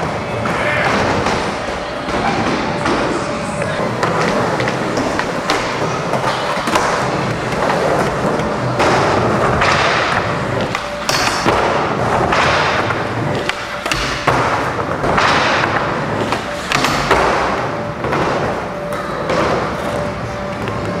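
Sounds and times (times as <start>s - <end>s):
skateboard wheels rolling on ramps: 0.0s - 21.0s
skateboard thuds and clacks: 4.0s - 19.8s.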